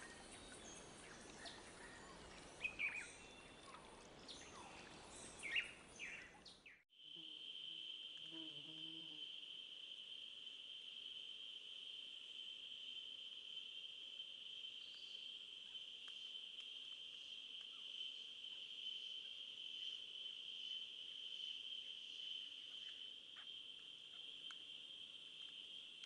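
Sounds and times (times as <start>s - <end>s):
high-pitched insect chorus: 7.0s - 26.0s.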